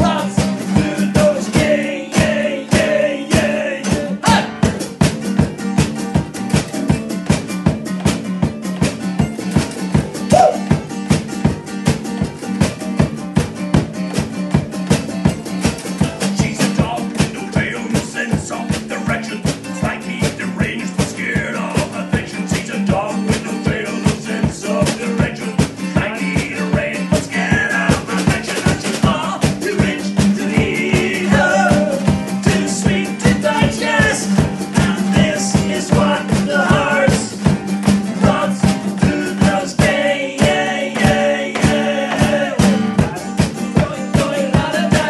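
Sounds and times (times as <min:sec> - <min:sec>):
group singing: 0:00.0 - 0:04.9, 0:10.3 - 0:10.7, 0:16.0 - 0:45.0
acoustic guitars strummed: 0:00.0 - 0:45.0.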